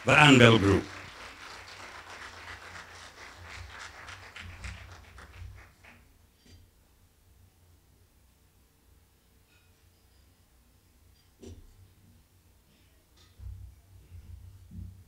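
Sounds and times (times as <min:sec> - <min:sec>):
audience applause: 0:00.0 - 0:06.0.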